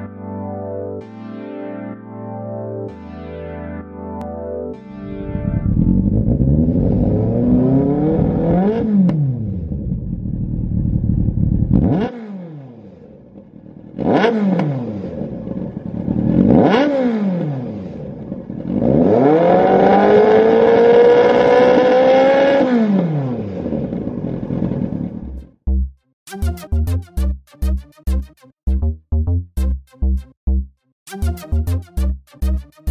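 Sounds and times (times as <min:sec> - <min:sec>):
motorcycle engine revving: 0:05.2 - 0:25.6.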